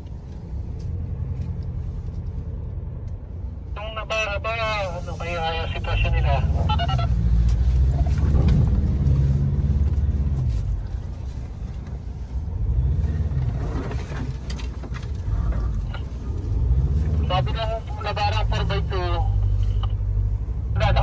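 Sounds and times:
pickup engine pulling: 0:05.0 - 0:21.0.

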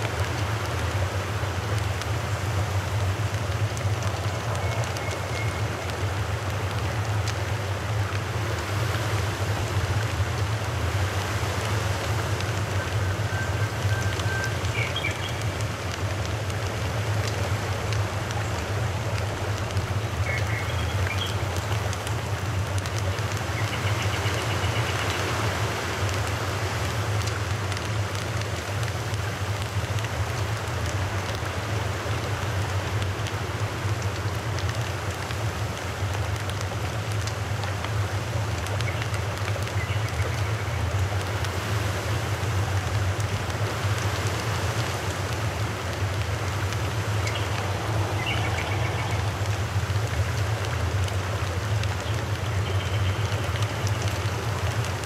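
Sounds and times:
rushing outdoor noise: 0:00.0 - 0:55.0.

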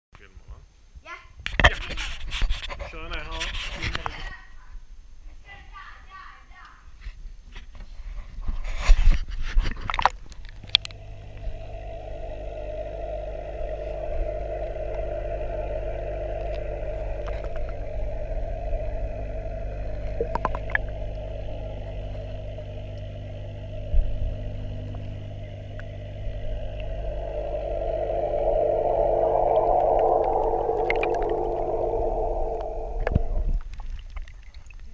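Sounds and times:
pump humming underwater: 0:09.8 - 0:34.7
air bubbles hissing: 0:10.6 - 0:34.0.

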